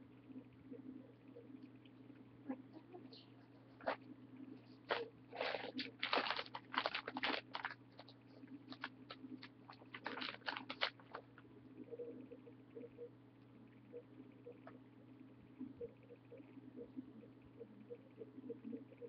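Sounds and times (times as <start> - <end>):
low electrical hum: 0.0 - 19.0
clicks and crackles: 4.9 - 11.5.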